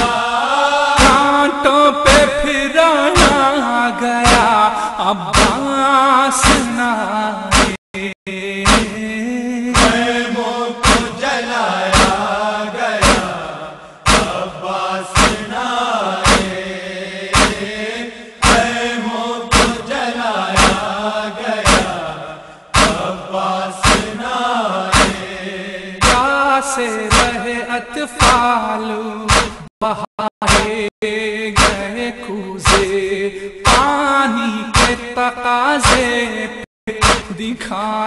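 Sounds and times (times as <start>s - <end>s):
sharp rhythmic slaps: 0.0s - 1.4s, 2.1s - 2.3s, 3.1s - 3.5s, 4.2s - 4.7s, 5.3s - 5.8s, 6.4s - 6.8s, 7.5s - 7.8s, 8.6s - 9.1s, 9.8s - 26.4s, 27.1s - 28.6s, 29.3s - 29.7s, 30.4s - 30.9s, 31.5s - 33.0s, 33.6s - 34.0s, 34.7s - 36.2s, 36.9s - 37.4s
voices chanting lament: 0.0s - 38.0s.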